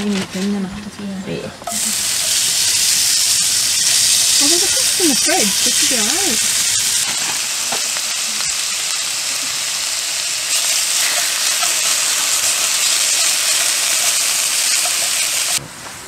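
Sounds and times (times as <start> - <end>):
potato sizzling in hot oil: 1.7 - 15.6
spatula stirring in pan: 10.5 - 15.6.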